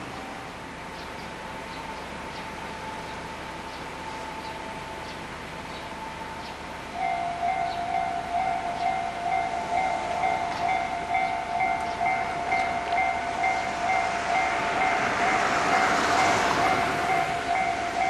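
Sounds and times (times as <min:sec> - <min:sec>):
level crossing warning bell: 0:01.3 - 0:18.0
rushing noise: 0:08.4 - 0:18.0.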